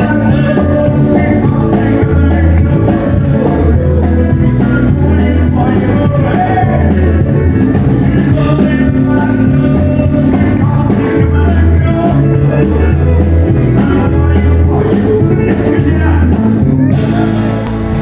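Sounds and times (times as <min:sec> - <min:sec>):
man singing into a microphone: 0:00.0 - 0:17.6
deep bass line: 0:00.0 - 0:18.0.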